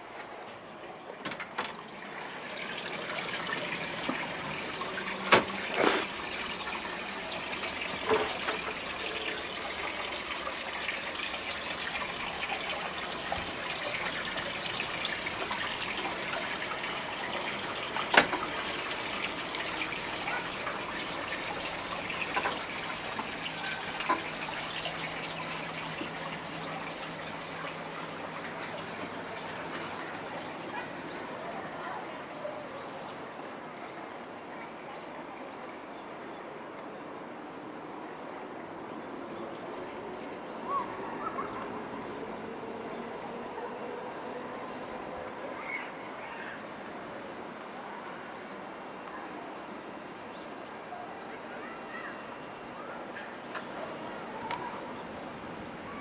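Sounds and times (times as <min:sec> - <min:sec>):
water trickling: 0:00.7 - 0:33.8.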